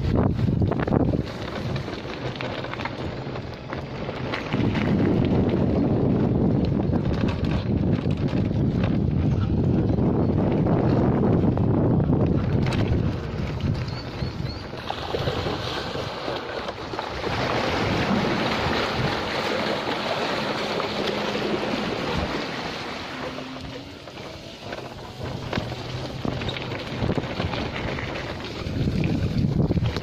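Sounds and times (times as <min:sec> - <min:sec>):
wind on microphone: 0:00.0 - 0:30.0
bike tyres splashing through water: 0:12.8 - 0:30.0.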